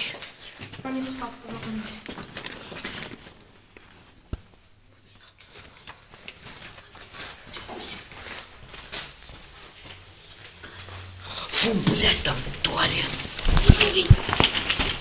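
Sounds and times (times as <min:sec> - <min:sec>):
rustling: 0:00.1 - 0:15.0
footsteps on hard floor: 0:00.6 - 0:02.9, 0:06.3 - 0:11.1.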